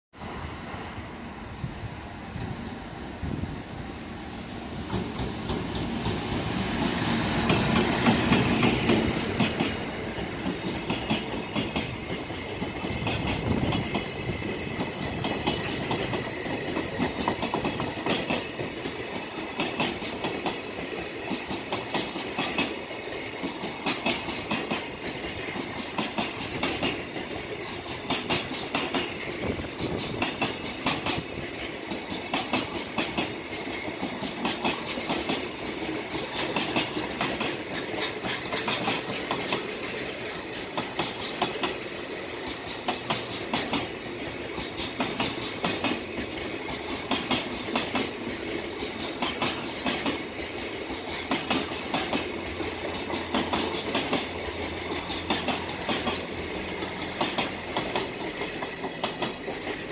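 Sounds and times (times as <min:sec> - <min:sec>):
electric locomotive passing: 0:00.2 - 0:59.9
train wheels clicking over rail joints: 0:04.8 - 0:59.9.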